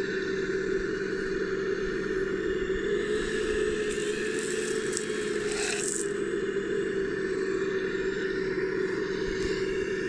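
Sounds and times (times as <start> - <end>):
electric motor whine: 2.1 - 10.0
gravel pouring and rattling: 3.9 - 6.1.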